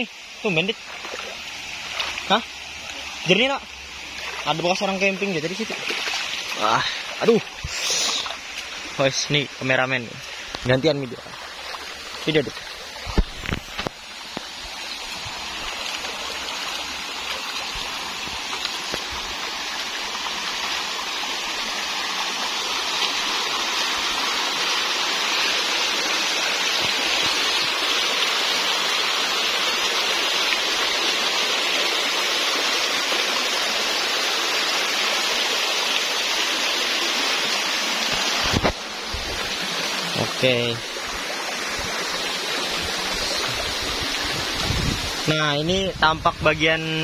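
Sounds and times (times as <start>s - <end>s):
water rushing over rocks: 0.0s - 47.0s.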